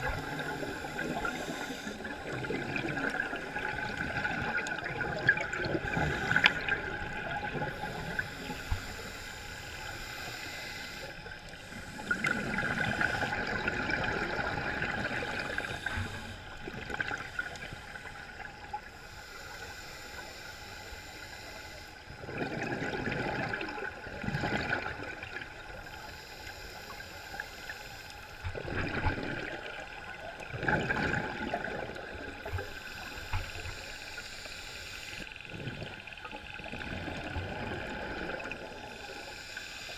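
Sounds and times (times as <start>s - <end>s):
regulator breathing hiss: 0.0s - 2.4s, 5.8s - 13.6s, 14.8s - 22.2s, 25.6s - 28.5s, 32.2s - 35.5s, 38.4s - 39.9s
exhaled bubbles gushing: 0.0s - 8.2s, 11.7s - 17.7s, 22.2s - 25.7s, 28.4s - 32.6s, 35.5s - 39.0s.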